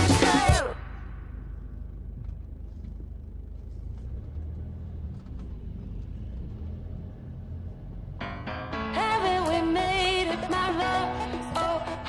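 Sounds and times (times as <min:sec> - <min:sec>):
car driving: 0:00.0 - 0:12.0.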